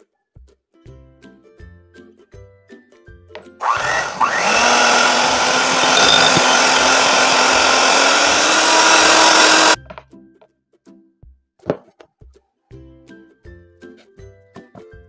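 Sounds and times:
electric hand mixer whirring: 3.6s - 9.8s.

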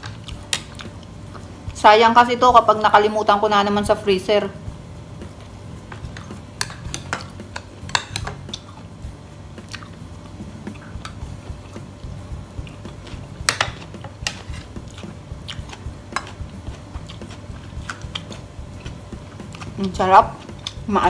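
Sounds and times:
chewing soft food: 9.6s - 11.9s, 12.6s - 20.9s.

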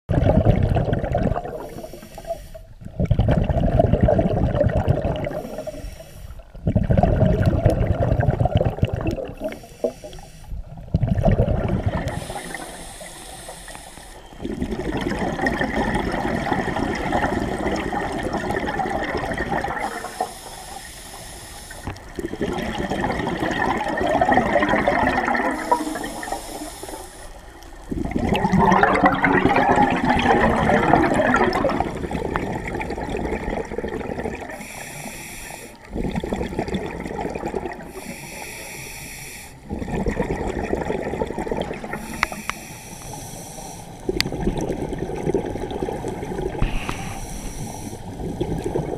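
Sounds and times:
exhaled bubbles rushing: 0.1s - 2.2s, 2.8s - 5.8s, 6.5s - 10.0s, 10.6s - 12.8s, 14.2s - 20.3s, 21.8s - 34.8s, 35.8s - 38.1s, 39.6s - 42.5s, 44.0s - 48.9s
regulator inhalation hiss: 1.6s - 2.8s, 5.3s - 6.6s, 9.4s - 10.6s, 12.1s - 14.5s, 19.8s - 22.2s, 25.5s - 27.8s, 34.5s - 35.9s, 37.9s - 39.7s, 41.9s - 44.1s, 46.6s - 48.6s.

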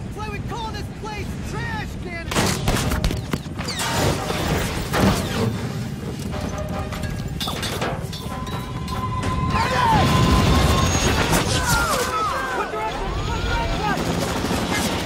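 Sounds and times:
helicopter engine and rotor: 12.6s - 15.0s.

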